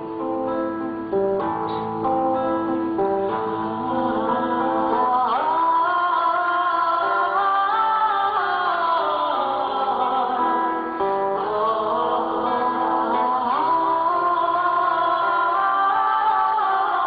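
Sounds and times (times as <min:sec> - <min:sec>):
acoustic guitar: 0:00.0 - 0:17.0
woman singing lullaby: 0:03.5 - 0:17.0.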